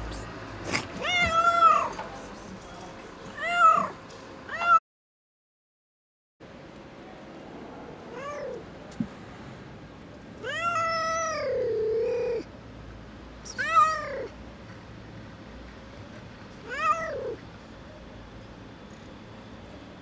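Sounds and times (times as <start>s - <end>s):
cat meowing: 0.7s - 2.0s, 3.4s - 4.8s, 8.1s - 8.6s, 10.4s - 12.4s, 13.5s - 14.3s, 16.6s - 17.4s.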